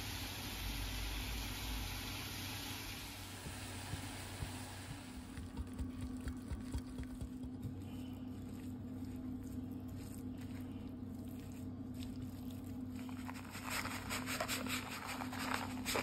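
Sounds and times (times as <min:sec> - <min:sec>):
spatula stirring rice mixture: 0:03.2 - 0:16.0.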